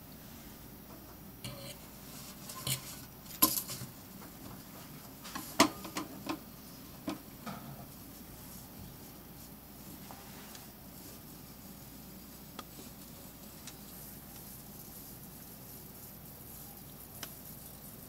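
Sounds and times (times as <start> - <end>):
fork clinking on a metal sink: 1.5 - 1.8.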